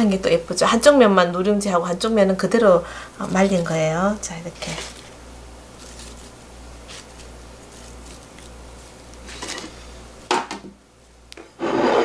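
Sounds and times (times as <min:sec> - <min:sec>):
rice crisps rustling and ticking: 0:03.2 - 0:09.9.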